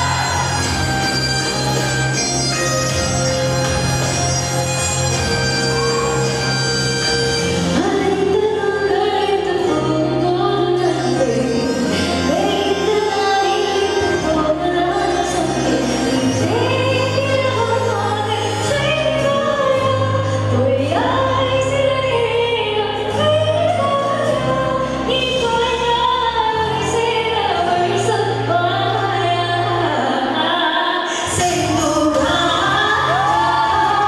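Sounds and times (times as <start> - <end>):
instrumental accompaniment with bass: 0.0 - 34.0
woman singing into microphone: 7.7 - 34.0.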